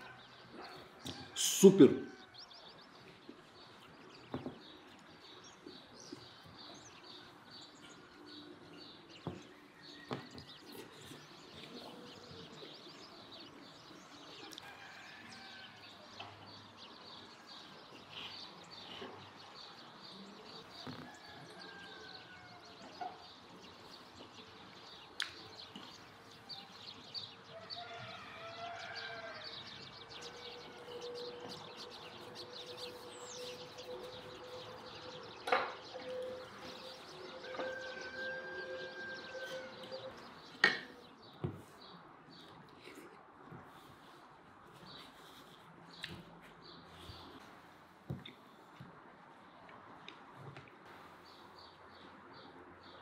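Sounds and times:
birds chirping and calling: 22.7 - 43.1.

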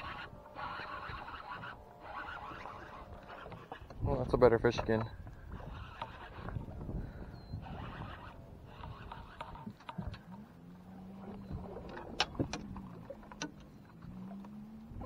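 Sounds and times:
electric motor hum: 0.0 - 4.0
fishing reel being cranked: 0.0 - 4.1, 4.9 - 6.7, 7.6 - 10.3.

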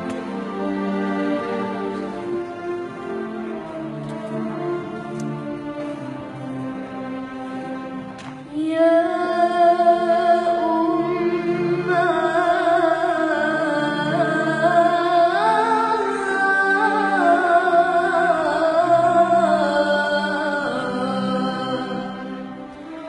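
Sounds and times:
girl singing a hymn: 8.5 - 22.3.

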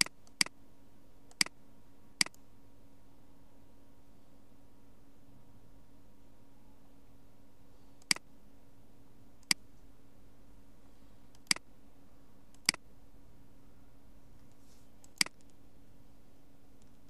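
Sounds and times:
computer mouse clicks: 0.0 - 0.5, 1.3 - 1.5, 2.2 - 2.4, 8.0 - 8.2, 11.3 - 11.6, 12.5 - 12.8, 14.4 - 15.6
faint steady hum: 0.0 - 17.0.

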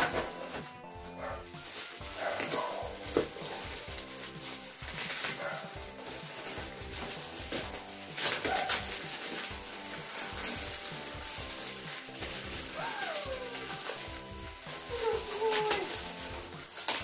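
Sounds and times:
foil wrapping paper crinkling: 0.0 - 17.0
music with a steady beat: 0.0 - 17.0.

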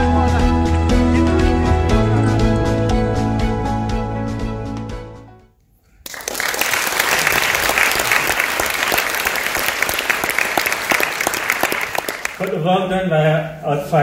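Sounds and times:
soundtrack music: 0.0 - 5.4
audience applauding: 6.0 - 12.6.

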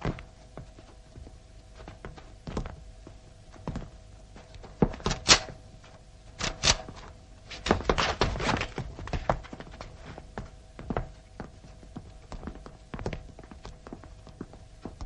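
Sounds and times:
heavy boots on floor: 0.0 - 6.1, 6.9 - 15.0
faint steady hum: 0.0 - 15.0.

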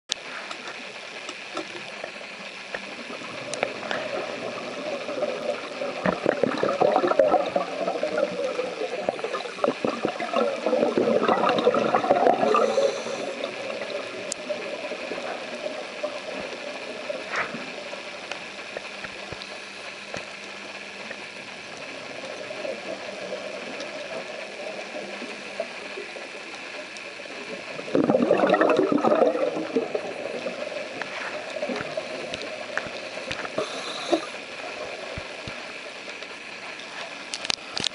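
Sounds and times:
faint hiss: 0.1 - 37.9
exhaled breath bubbling underwater: 3.0 - 17.8, 27.7 - 35.3.

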